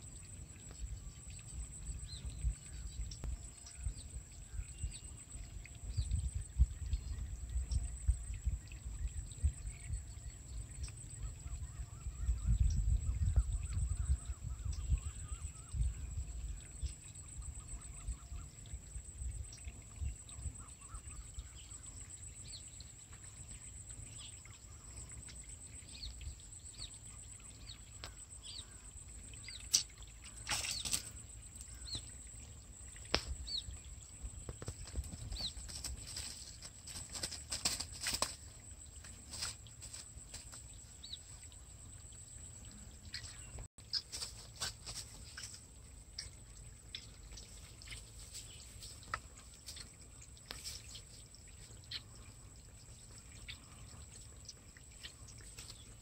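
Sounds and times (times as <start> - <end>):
wind rumbling on microphone: 0.5 - 22.6, 31.7 - 45.5
small birds chirping: 19.5 - 56.0
rustling and flapping in grass: 34.5 - 40.7.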